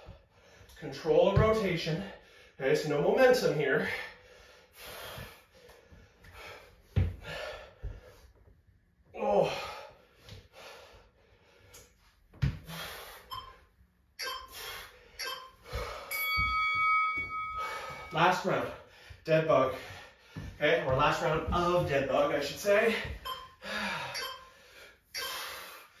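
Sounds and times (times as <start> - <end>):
man breathing hard: 0.0 - 0.8, 2.0 - 2.6, 3.8 - 8.5, 9.4 - 13.6, 14.5 - 16.3, 17.5 - 20.6, 22.8 - 26.0
feet thudding on floor mat: 6.9 - 8.0, 19.9 - 22.2.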